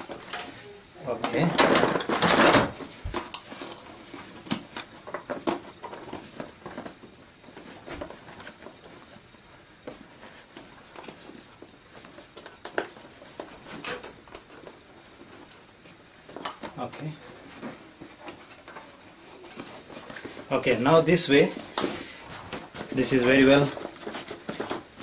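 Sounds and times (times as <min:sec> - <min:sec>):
fabric rustling: 0:13.1 - 0:25.0.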